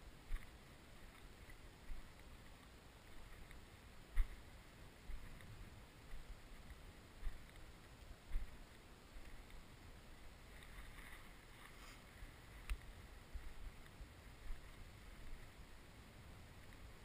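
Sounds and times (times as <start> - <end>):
footsteps through dry stubble: 10.5 - 12.6.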